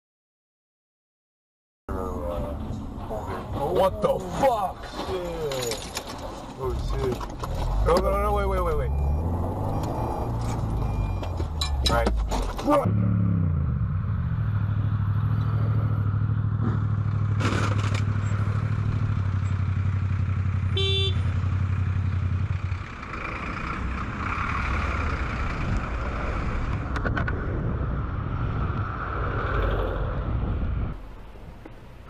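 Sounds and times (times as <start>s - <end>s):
traffic noise: 1.9s - 32.0s
horn beep: 8.7s - 12.1s, 20.7s - 21.3s
motorcycle engine cruising: 12.6s - 27.0s
wind rush: 25.4s - 32.0s.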